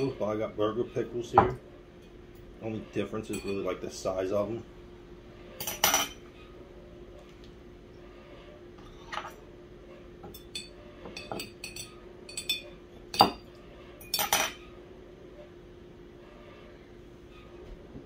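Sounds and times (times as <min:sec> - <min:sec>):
utensil clinking against glass: 0:03.3 - 0:03.7, 0:10.3 - 0:13.4.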